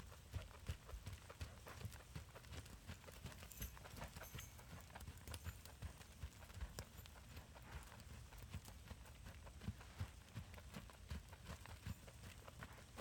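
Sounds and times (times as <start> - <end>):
horse hoofbeats on sand: 0.0 - 13.0.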